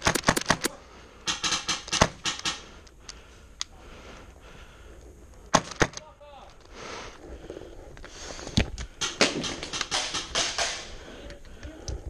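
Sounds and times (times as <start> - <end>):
airsoft rifle shots: 0.0 - 2.8, 9.0 - 11.0.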